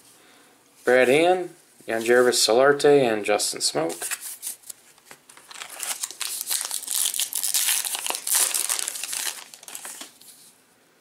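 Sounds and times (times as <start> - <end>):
wrapper crinkling as torn open: 4.5 - 10.2.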